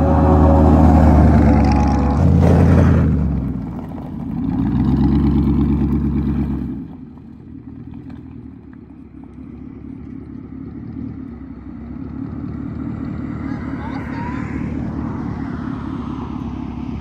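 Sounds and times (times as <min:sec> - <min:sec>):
car engine revving: 0:00.0 - 0:07.3
exhaust rumble: 0:00.0 - 0:17.0.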